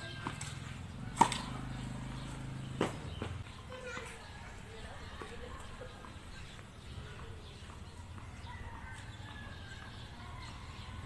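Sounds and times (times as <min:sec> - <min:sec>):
tennis ball knocks: 0:01.2 - 0:01.7.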